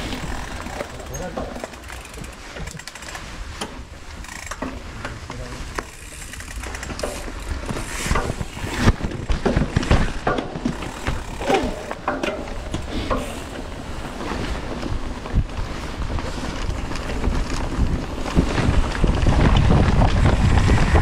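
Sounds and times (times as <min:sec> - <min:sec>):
chain and frame rattling: 0:00.0 - 0:03.4, 0:05.6 - 0:14.2
bike tyres on dirt: 0:00.0 - 0:21.0.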